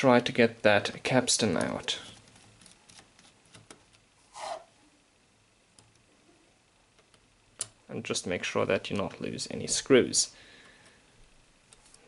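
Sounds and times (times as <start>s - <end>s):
brief scraping rub: 4.3s - 4.7s.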